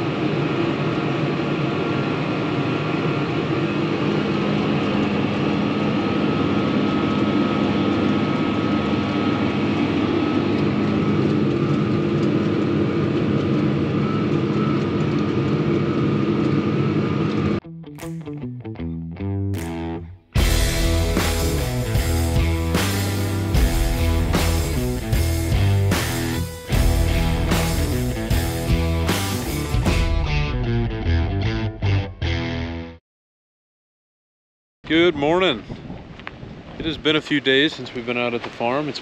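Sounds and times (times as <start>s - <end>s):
tractor engine running: 4.4s - 17.6s, 20.4s - 30.3s
guitar music: 17.6s - 33.0s.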